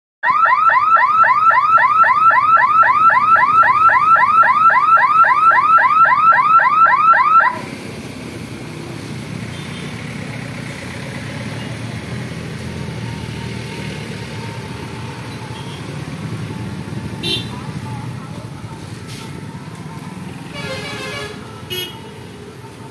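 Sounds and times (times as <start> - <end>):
crossing barrier warning siren: 0.2 - 7.7, 12.5 - 17.3
car engines: 0.4 - 22.9
motorcycle engines: 0.8 - 22.9.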